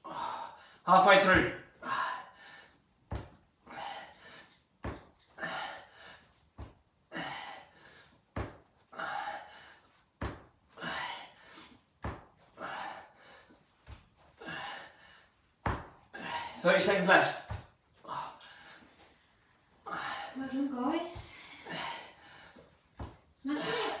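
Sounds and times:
man breathing hard: 0.0 - 0.9, 1.7 - 3.0, 3.6 - 10.1, 10.7 - 16.6, 17.9 - 20.4, 21.2 - 24.0
heels thudding on mat: 3.1 - 3.4, 4.8 - 5.2, 6.5 - 6.9, 8.3 - 8.7, 10.2 - 10.6, 12.0 - 12.4, 15.6 - 16.1, 17.4 - 17.8, 22.9 - 23.3.

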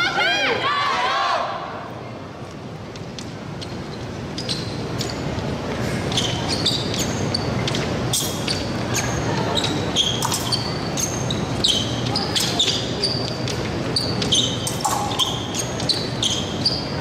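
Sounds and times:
murmur of hall: 0.0 - 17.0
shoes squeaking on floor: 3.6 - 17.0.

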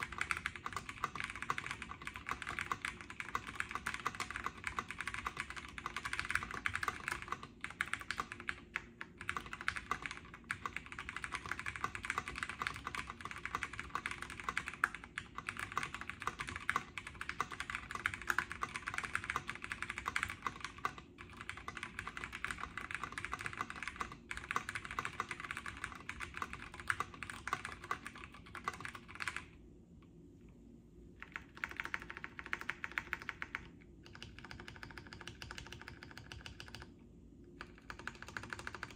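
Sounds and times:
fast mechanical keyboard typing: 0.0 - 29.6, 31.2 - 36.9, 37.6 - 38.9.

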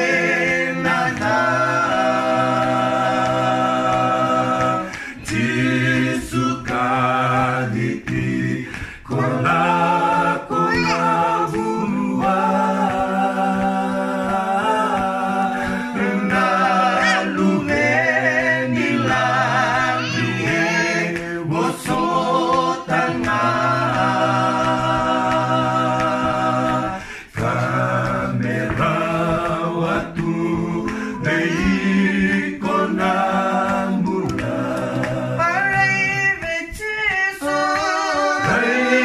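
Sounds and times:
a cappella group singing: 0.0 - 39.0.

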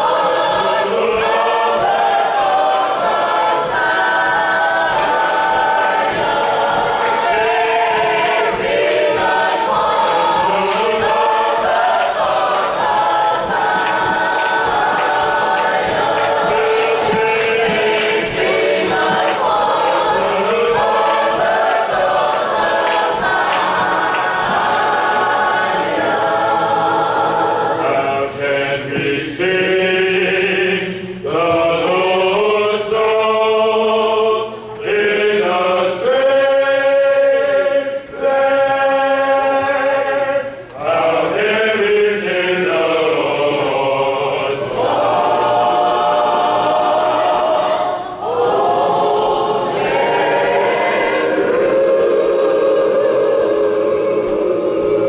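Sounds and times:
church choir singing: 0.0 - 55.0.

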